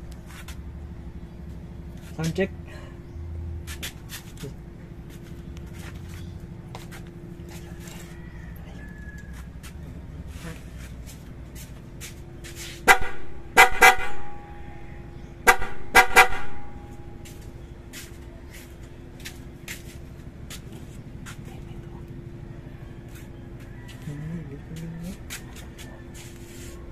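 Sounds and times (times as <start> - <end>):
dual-tone electric horn honks: 12.8 - 17.3.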